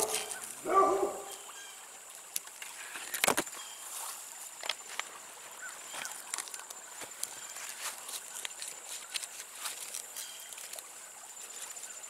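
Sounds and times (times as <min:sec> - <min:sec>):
leaves and twigs rustling: 0:00.0 - 0:12.0.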